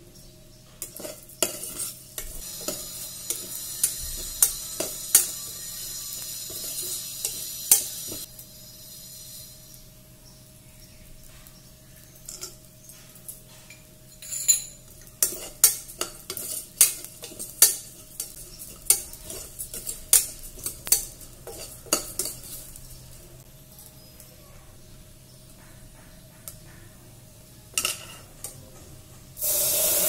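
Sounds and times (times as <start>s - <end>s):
ladle clinking and scraping pot: 0.8s - 8.3s, 12.2s - 23.2s, 27.7s - 28.6s.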